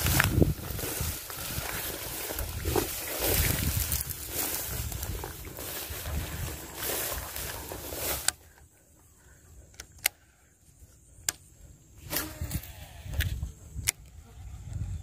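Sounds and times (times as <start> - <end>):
wind buffeting microphone: 0.0 - 8.2, 12.4 - 15.0
grass rustling: 0.0 - 9.4
sharp clicks: 9.7 - 10.2.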